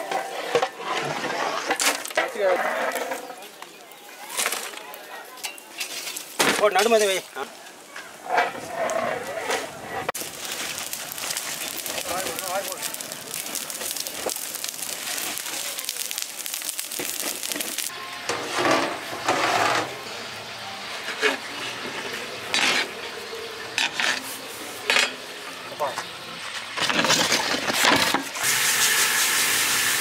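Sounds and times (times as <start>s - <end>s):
steady hiss: 10.2s - 17.9s.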